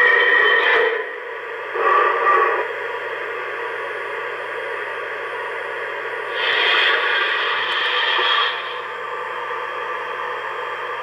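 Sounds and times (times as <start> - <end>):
faint hum: 0.0 - 11.0
model train hiss and rumble: 6.3 - 8.8.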